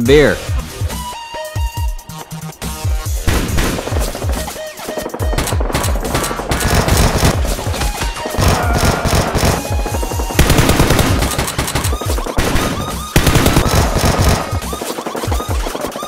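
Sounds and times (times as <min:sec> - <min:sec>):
automatic gunfire bursts: 0:03.2 - 0:16.0.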